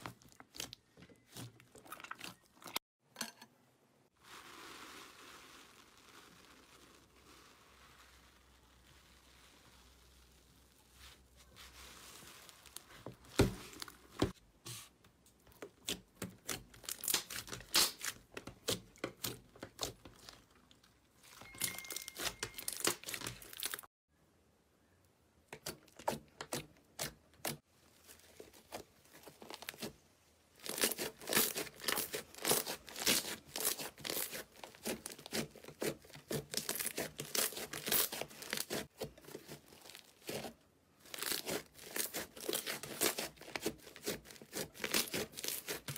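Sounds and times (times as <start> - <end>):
crunchy slime crackling and popping: 15.6 - 21.0, 21.6 - 23.9, 25.6 - 30.0, 30.6 - 45.9.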